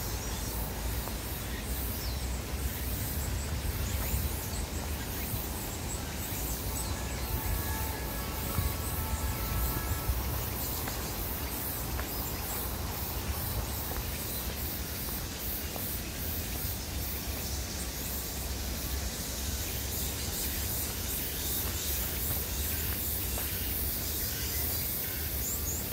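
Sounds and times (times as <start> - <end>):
wind rumble: 2.2 - 15.4.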